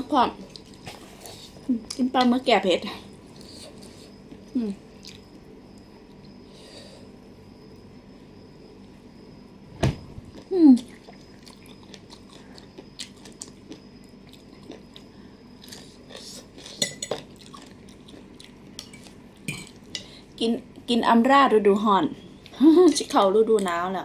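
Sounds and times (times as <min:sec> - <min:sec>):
chewing: 0:03.4 - 0:05.4, 0:10.3 - 0:20.1.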